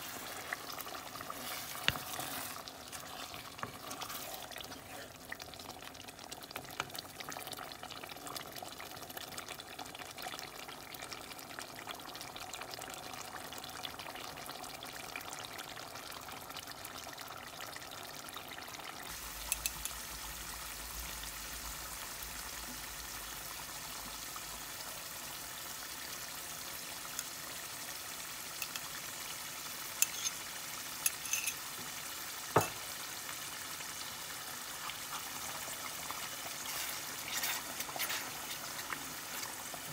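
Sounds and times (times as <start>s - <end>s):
wooden spoon stirring curry: 0.0s - 5.2s, 34.8s - 39.3s
curry simmering and bubbling: 0.0s - 39.9s.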